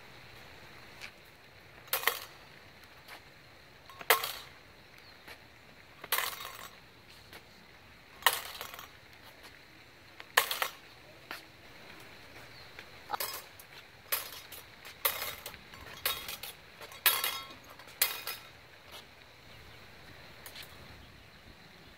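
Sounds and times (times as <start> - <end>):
steel blades clashing: 13.1 - 18.5.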